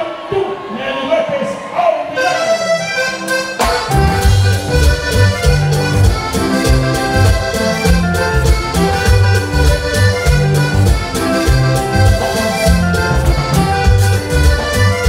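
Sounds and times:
accordion-led folk band playing: 2.0s - 15.0s
congas: 2.1s - 15.0s
bass and drums: 3.6s - 15.0s.

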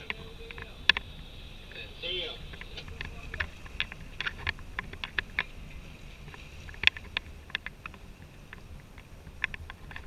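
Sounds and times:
sharp clicks and ticks: 0.0s - 1.1s, 2.5s - 5.5s, 6.3s - 10.0s
boat engine rumble: 0.0s - 10.0s.

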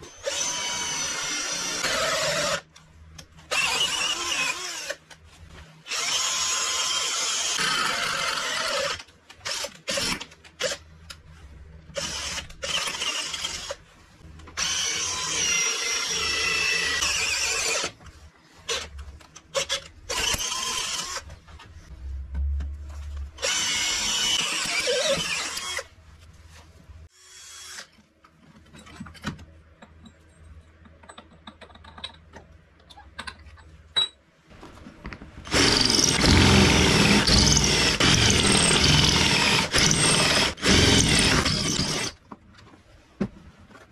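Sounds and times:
power tool running: 35.5s - 42.1s.

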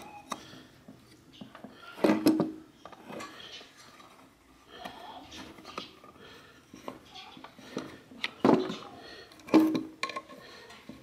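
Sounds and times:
metal parts clicking and knocking: 7.8s - 11.0s.

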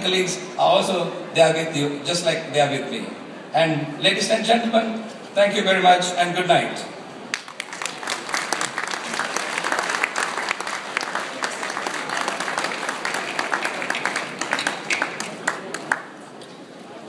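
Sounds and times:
audience applauding: 7.3s - 16.2s.

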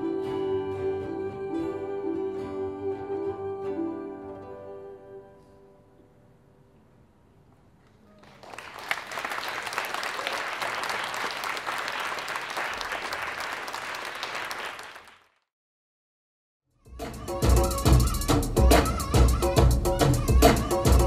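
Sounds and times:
audience applauding: 8.1s - 15.4s.

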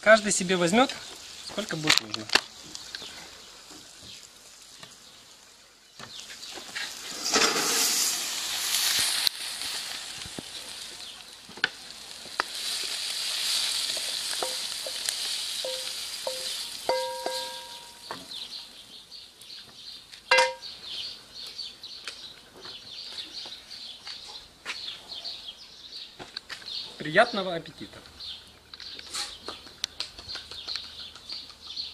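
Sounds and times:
mushrooms sizzling in oil: 2.5s - 18.9s
wooden spatula scraping pan: 6.7s - 8.2s.

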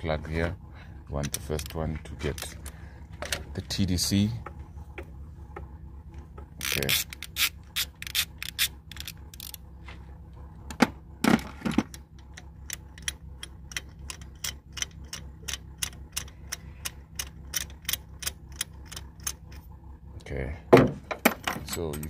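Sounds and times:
ratchet wrench clicking: 6.6s - 9.6s, 12.6s - 19.6s.

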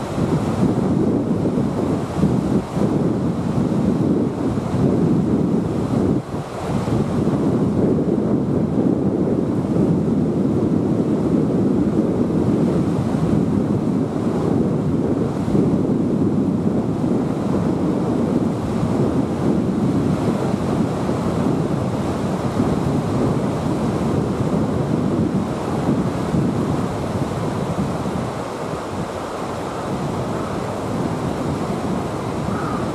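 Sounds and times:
water rushing through river rapids: 0.0s - 7.6s, 18.6s - 32.9s.

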